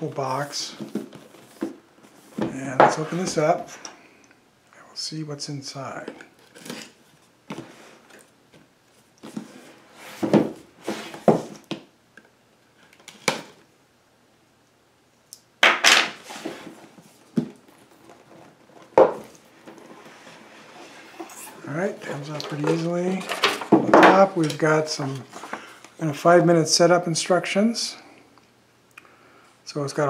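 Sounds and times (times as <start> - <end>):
box scraping on wooden table: 19.7 - 21.8.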